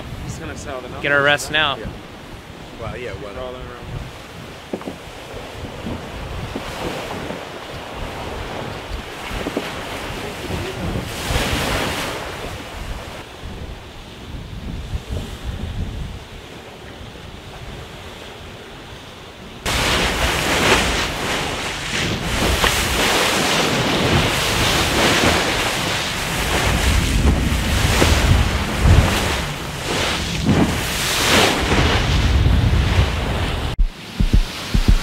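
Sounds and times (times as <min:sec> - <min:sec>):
water rushing along hull: 0:00.0 - 0:35.0
wind buffeting microphone: 0:00.0 - 0:35.0
low thumps: 0:33.7 - 0:35.0.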